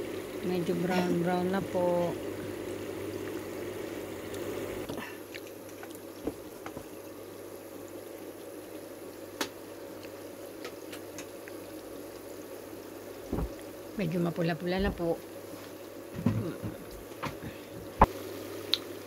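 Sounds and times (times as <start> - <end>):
oil popping: 0.0 - 7.1, 9.3 - 14.0
deep-frying sizzle and bubbling: 0.0 - 19.0.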